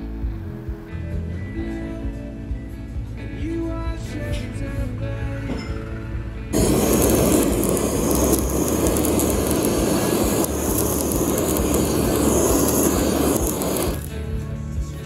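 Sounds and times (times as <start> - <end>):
blowtorch flame burning: 6.5 - 14.4.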